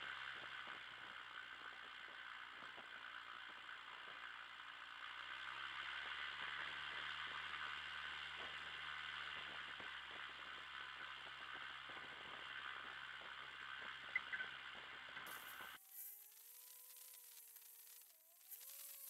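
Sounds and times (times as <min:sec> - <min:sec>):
aircraft engine low hum: 0:00.0 - 0:19.0
strong hiss: 0:15.3 - 0:19.0.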